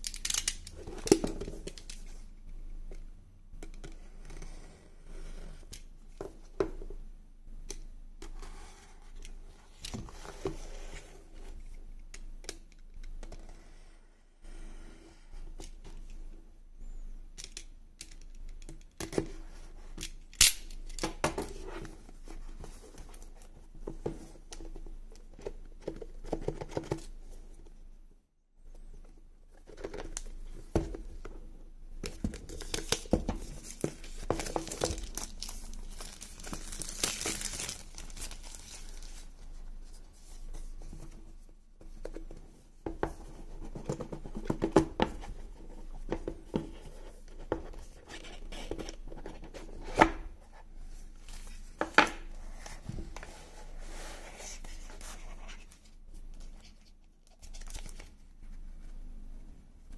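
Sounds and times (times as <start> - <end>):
plastic wrap tearing and crinkling: 34.6 - 39.1.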